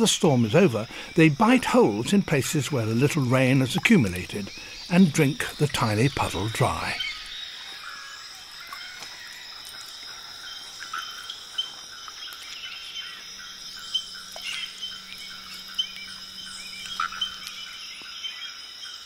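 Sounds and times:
insect chirps and clicks: 0.0s - 19.0s
insects trilling: 0.0s - 19.0s.

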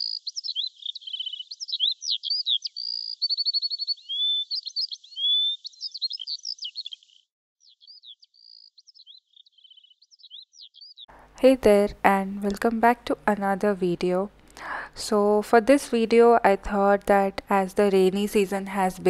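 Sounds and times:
songbird singing trills: 0.0s - 11.1s.

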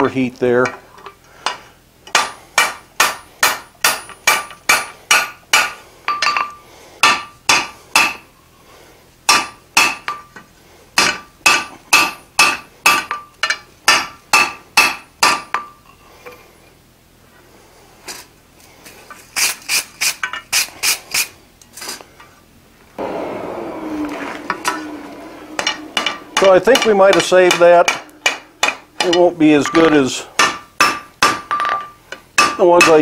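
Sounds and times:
hammer striking iron on anvil: 1.5s - 8.2s, 9.3s - 10.3s, 11.0s - 15.7s, 24.4s - 33.0s.

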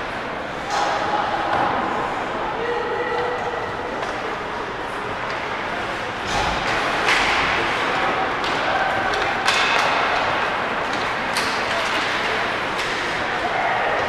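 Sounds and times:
crowd chatter: 0.0s - 14.0s
puck and stick knocks on boards: 8.4s - 12.2s.

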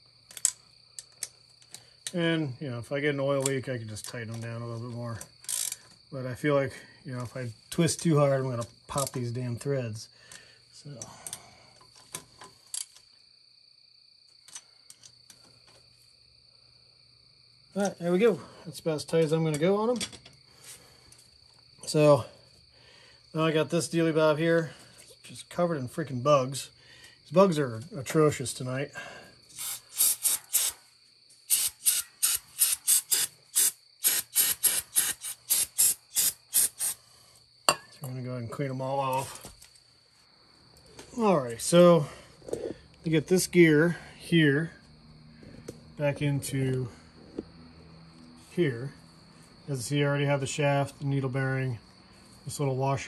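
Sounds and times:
high insect trill: 0.0s - 53.0s
aerosol spray hissing: 29.6s - 30.8s, 31.5s - 37.0s
hand ratchet clicking: 29.6s - 30.8s, 31.5s - 37.0s.

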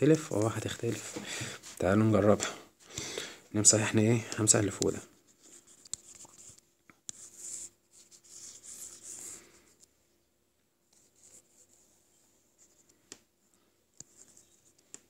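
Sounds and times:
stylus scratching on screen: 4.5s - 9.8s.

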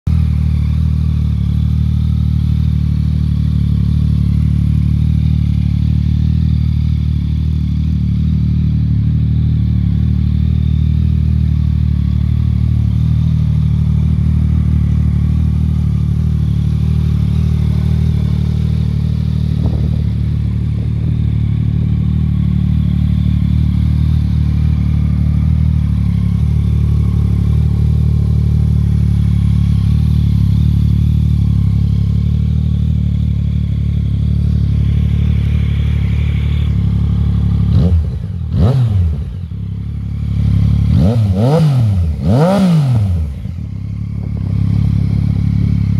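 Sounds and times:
motorcycle engine idling: 0.1s - 45.9s.

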